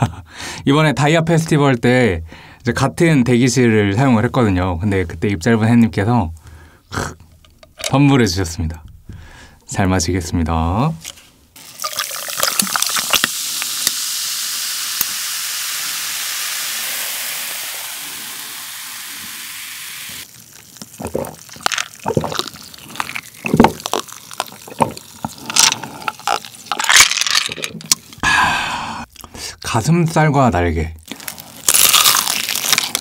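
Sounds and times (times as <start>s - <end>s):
cola pouring and fizzing: 11.6s - 28.2s, 31.0s - 33.0s.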